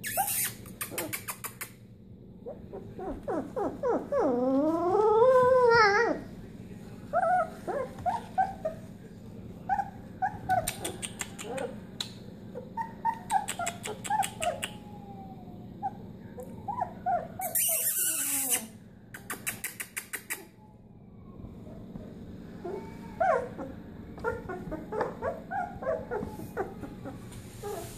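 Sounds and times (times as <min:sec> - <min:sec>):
puppy high squeaks: 0:00.0 - 0:01.8, 0:07.1 - 0:08.8, 0:09.7 - 0:11.8, 0:12.8 - 0:14.9, 0:16.6 - 0:20.6, 0:22.6 - 0:27.9
puppy whining: 0:00.0 - 0:01.8, 0:02.4 - 0:06.4, 0:07.0 - 0:09.0, 0:09.6 - 0:27.9.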